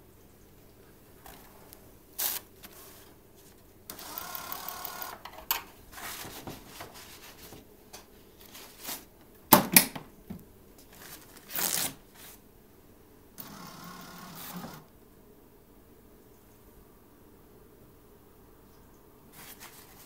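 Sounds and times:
paper rustling: 1.2 - 3.7, 5.9 - 7.7, 8.3 - 9.2, 10.8 - 12.4, 19.3 - 20.0
electric feed motor running: 13.4 - 14.9.

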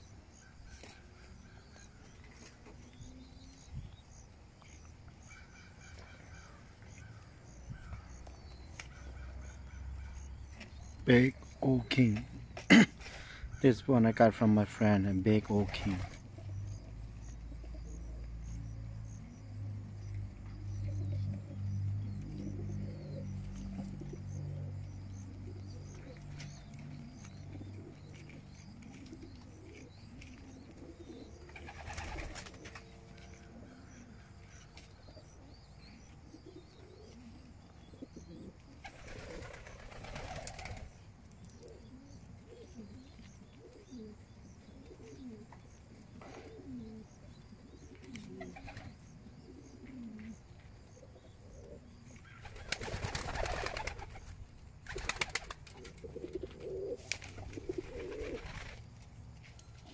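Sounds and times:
pigeons cooing: 0.0 - 59.9
wings flapping: 15.5 - 16.4, 31.5 - 32.9, 38.8 - 41.0, 52.2 - 58.8.

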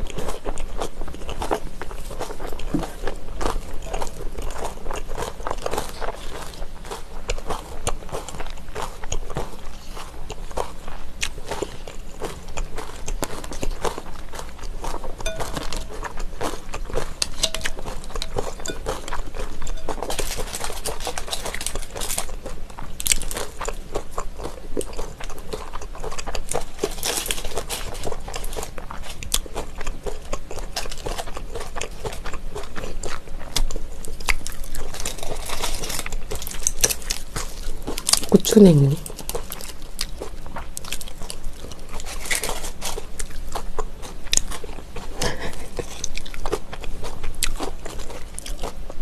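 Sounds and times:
crunchy chewing: 0.0 - 49.0
chopsticks clicking in glass bowl: 17.2 - 18.9.

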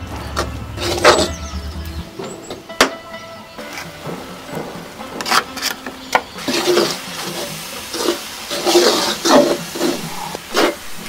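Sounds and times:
wooden spoon stirring in a wok: 3.6 - 11.0.

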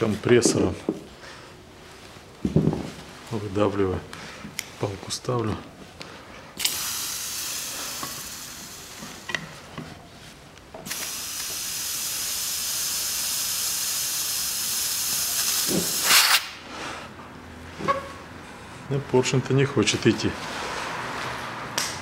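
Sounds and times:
compressed air hissing: 6.6 - 9.7, 10.8 - 16.7.

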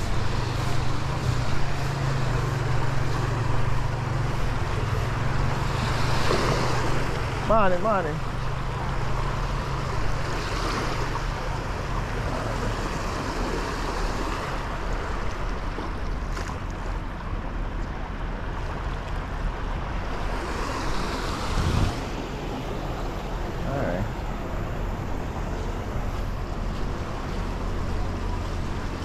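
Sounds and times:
waves lapping on sandy beach: 0.0 - 29.0
wind on microphone: 19.9 - 29.0.

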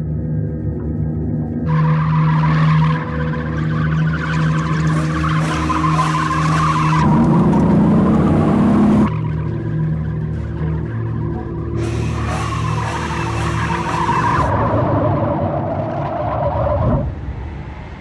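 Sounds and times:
low music drone: 0.0 - 18.0
car engine at high revs: 2.6 - 16.1.

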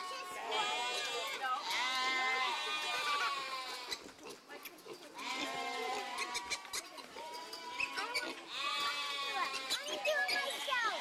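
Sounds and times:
young goats bleating: 0.0 - 4.4, 5.1 - 11.0.

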